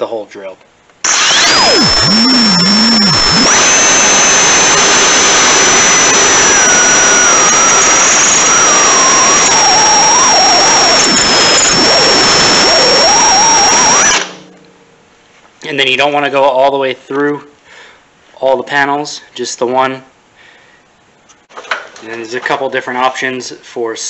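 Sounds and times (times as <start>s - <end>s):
drill screeching through metal: 1.0s - 14.5s
high whine: 1.0s - 15.2s.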